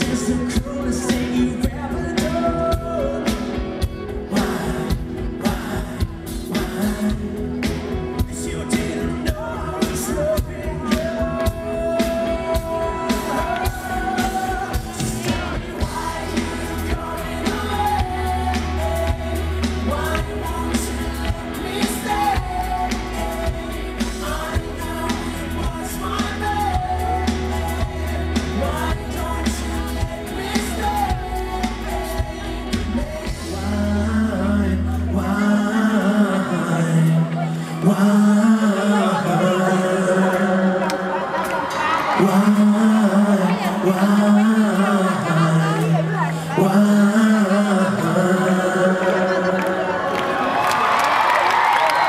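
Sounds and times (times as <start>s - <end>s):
steady drum beat: 0.0s - 34.1s
pulsing bass line: 0.0s - 35.9s
man singing: 0.0s - 50.5s
electric guitar: 0.0s - 52.0s.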